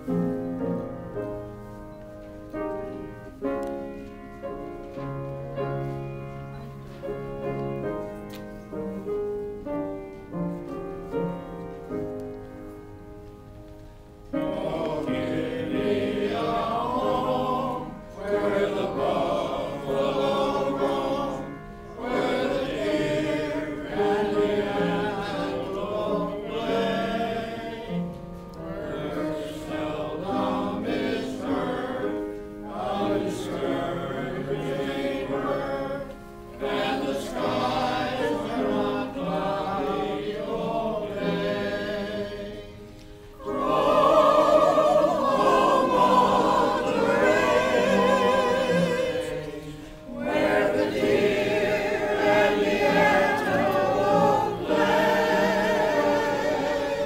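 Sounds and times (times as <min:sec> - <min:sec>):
choir singing: 0:14.3 - 0:57.0.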